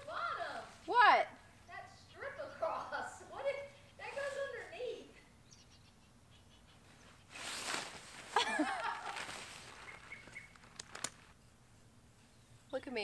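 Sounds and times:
tent fabric rustling: 0.0s - 1.0s, 3.4s - 4.9s, 6.8s - 11.4s
sharp clicks: 10.0s - 11.4s.

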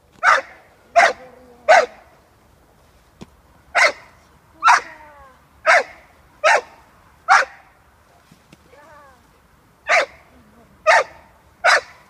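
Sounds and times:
puppy barking: 0.2s - 2.0s, 3.8s - 4.9s, 5.7s - 7.6s, 9.9s - 10.2s, 10.9s - 12.0s.

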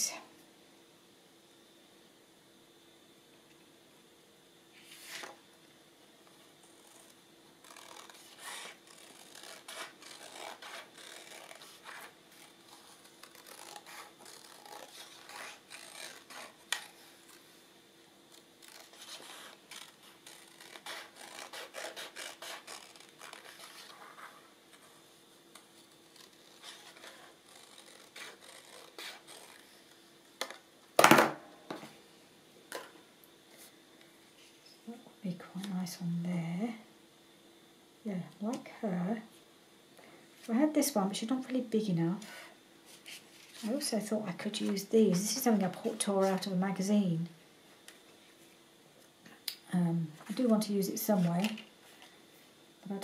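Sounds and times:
scissors snipping paper: 6.8s - 16.9s, 18.6s - 24.0s, 26.1s - 29.6s.

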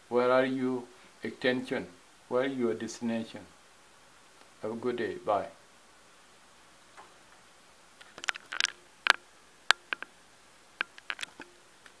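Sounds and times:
device handling clicks and taps: 8.0s - 10.1s, 10.8s - 11.5s.

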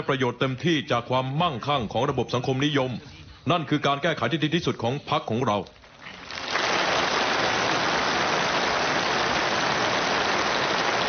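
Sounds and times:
crowd applauding: 6.0s - 11.0s.

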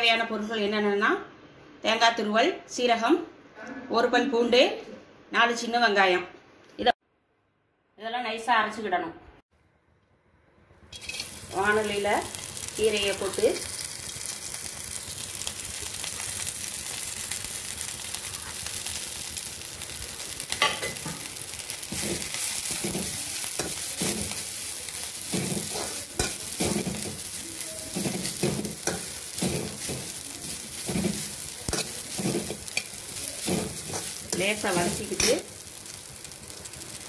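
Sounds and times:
greens sizzling in a pan: 10.9s - 37.0s
spatula scraping and knocking pan: 21.9s - 24.6s, 25.2s - 35.4s.

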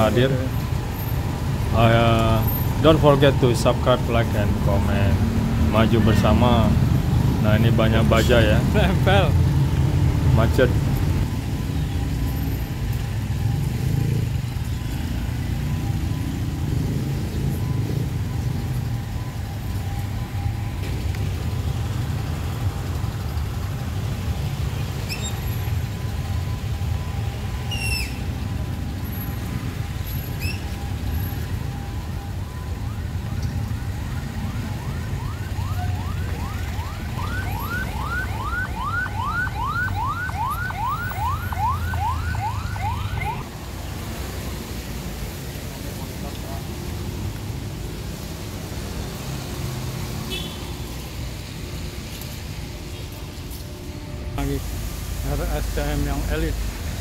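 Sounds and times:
ambulance siren yelping: 0.0s - 43.5s
traffic rumble on wet road: 0.0s - 57.0s.

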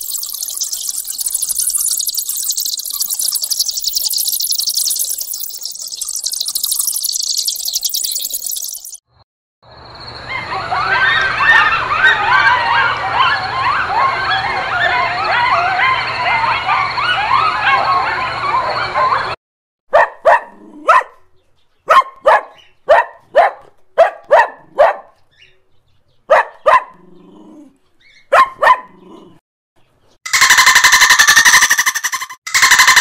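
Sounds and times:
coyotes yipping and howling: 0.0s - 8.9s, 10.2s - 19.4s, 30.3s - 33.0s
dog barking: 17.6s - 21.2s, 21.8s - 25.2s, 26.3s - 27.1s, 28.3s - 29.0s.

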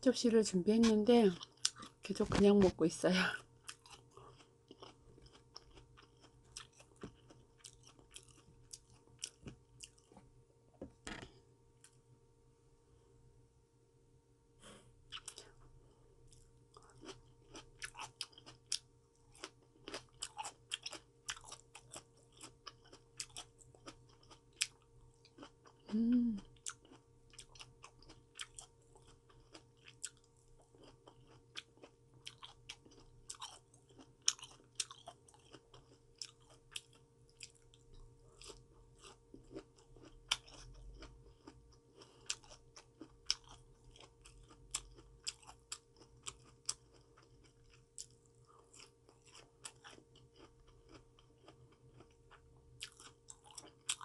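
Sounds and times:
chewing crisp vegetables: 0.6s - 10.2s, 14.7s - 15.6s, 16.2s - 54.0s
person humming: 25.9s - 26.5s.

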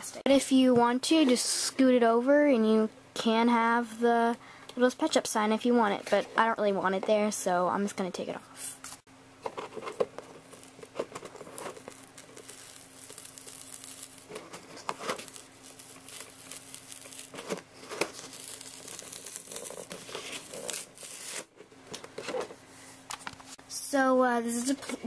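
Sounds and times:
plastic crinkling: 9.5s - 21.5s
cardboard tearing: 10.4s - 21.5s.

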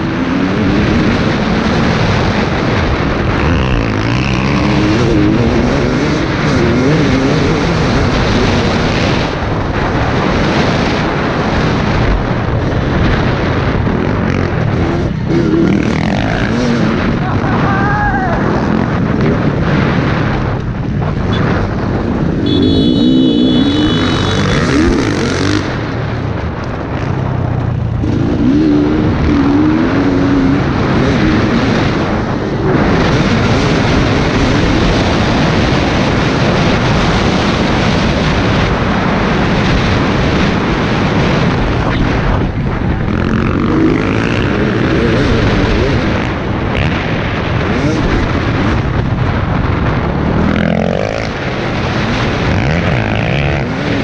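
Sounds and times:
two-stroke engine revving: 0.0s - 9.4s, 13.1s - 17.6s, 22.4s - 26.0s, 28.0s - 38.2s, 43.0s - 48.9s, 49.8s - 54.0s.

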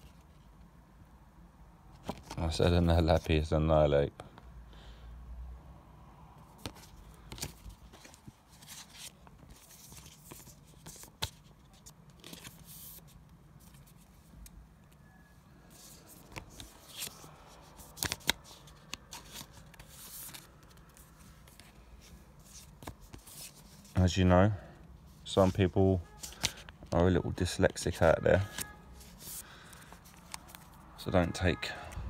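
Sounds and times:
trading cards being handled: 1.9s - 3.3s, 6.5s - 15.0s, 15.6s - 24.3s, 25.0s - 32.0s.

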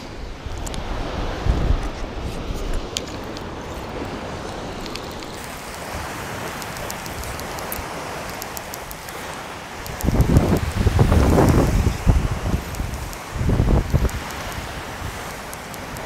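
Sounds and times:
ocean surf washing on beach: 0.0s - 16.0s
wind on microphone: 0.0s - 16.0s
faint high ticks: 0.5s - 0.9s, 4.5s - 16.0s.

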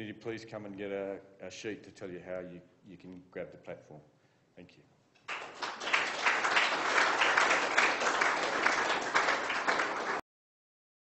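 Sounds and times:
audience applauding: 5.3s - 10.2s.

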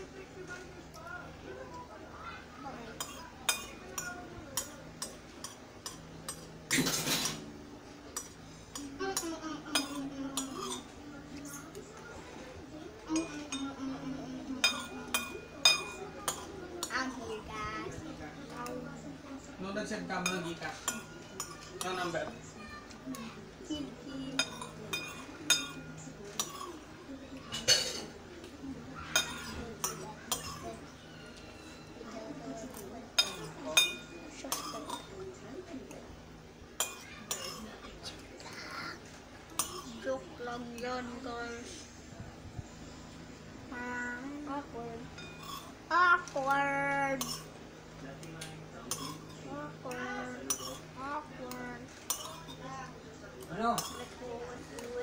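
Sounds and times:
cutlery clinking on ceramic bowl: 3.0s - 7.5s, 14.6s - 17.0s, 24.4s - 26.8s, 29.1s - 30.8s, 32.7s - 35.2s, 36.8s - 37.7s, 45.1s - 45.8s, 47.2s - 47.5s, 48.2s - 49.4s, 50.4s - 50.9s, 52.1s - 52.6s, 53.4s - 54.2s.

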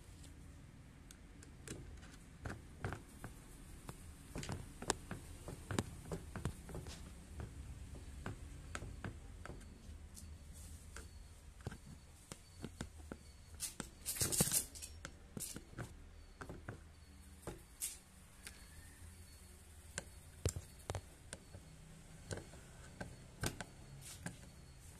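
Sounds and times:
metal clicks and taps: 19.9s - 24.5s.

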